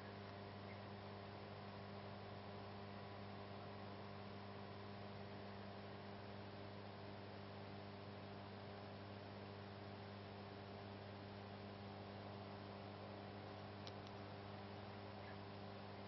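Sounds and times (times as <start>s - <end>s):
faint mains hum: 0.0s - 16.0s
faint ticks: 13.5s - 14.3s.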